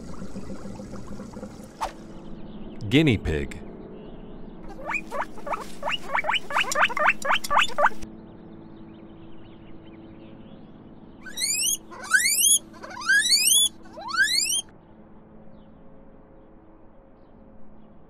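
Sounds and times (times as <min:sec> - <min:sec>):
guinea pigs squeaking: 0:04.7 - 0:08.0, 0:11.3 - 0:14.6.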